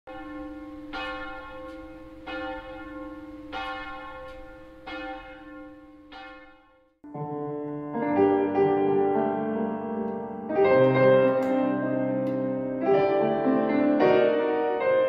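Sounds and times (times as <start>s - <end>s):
church bell tolling: 0.1s - 7.0s.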